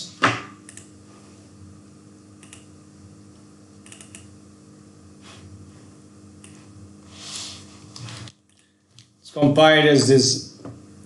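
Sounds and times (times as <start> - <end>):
low electrical hum: 0.0 - 11.0
keyboard and mouse clicks: 2.4 - 2.7, 3.8 - 4.3.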